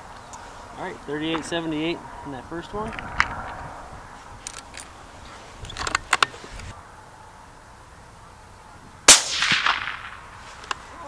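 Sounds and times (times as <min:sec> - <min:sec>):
rifle shot: 0:09.1 - 0:10.4.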